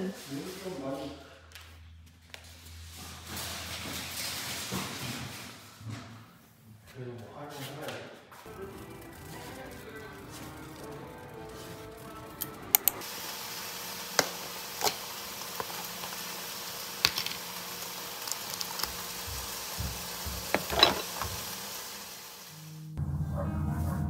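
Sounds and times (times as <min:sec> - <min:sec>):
objects clicking and knocking: 0:20.4 - 0:21.4.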